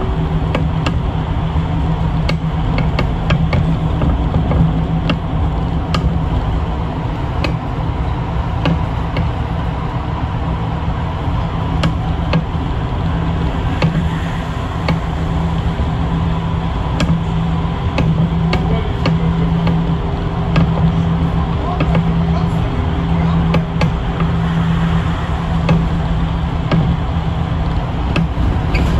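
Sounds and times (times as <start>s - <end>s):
bus engine drone: 0.0s - 28.9s
road and tyre noise: 0.0s - 28.9s
cabin clicks and rattles: 16.9s - 24.4s.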